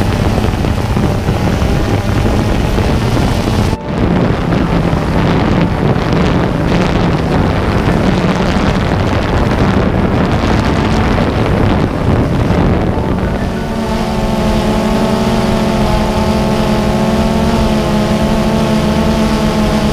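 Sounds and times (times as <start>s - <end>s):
drone propellers humming: 0.0s - 19.9s
wind rushing over microphone: 0.0s - 19.9s.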